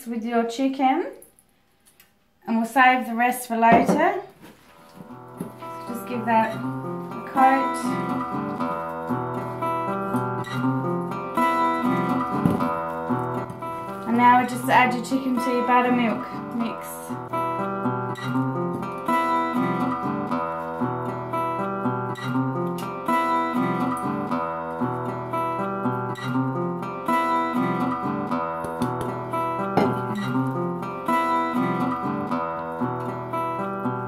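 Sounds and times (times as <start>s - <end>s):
plucked acoustic guitar: 3.6s - 34.0s.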